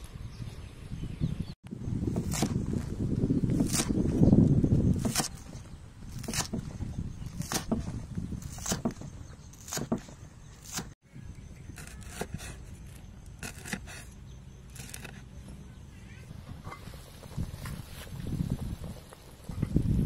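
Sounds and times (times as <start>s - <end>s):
cleaver chopping on wooden block: 5.0s - 5.6s, 6.2s - 6.8s, 7.4s - 11.0s.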